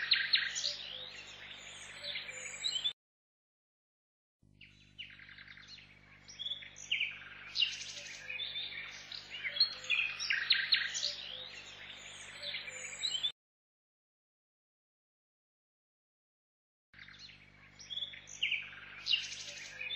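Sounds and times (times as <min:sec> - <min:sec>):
small birds chirping: 0:00.0 - 0:03.0, 0:04.5 - 0:13.3, 0:17.0 - 0:19.9.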